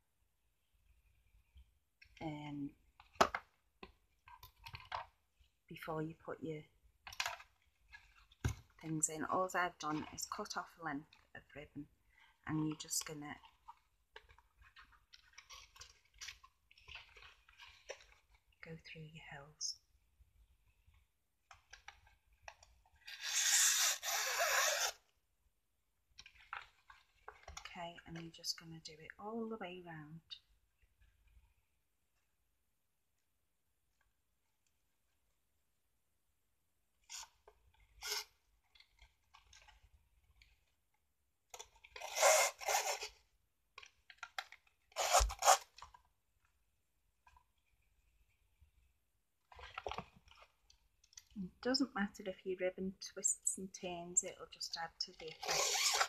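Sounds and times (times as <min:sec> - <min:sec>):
ribbon scraping rasps: 0:12.8 - 0:18.4, 0:21.7 - 0:25.1, 0:37.0 - 0:39.8, 0:41.6 - 0:43.3, 0:44.4 - 0:46.0, 0:55.3 - 0:56.0
paper rustles and ticks: 0:26.2 - 0:28.4, 0:42.9 - 0:46.1, 0:49.4 - 0:51.4.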